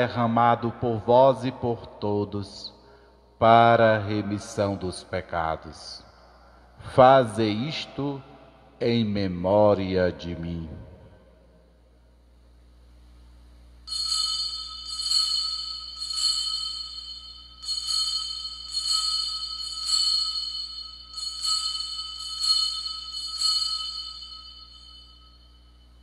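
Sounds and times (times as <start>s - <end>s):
altar bells ringing: 13.9s - 26.0s.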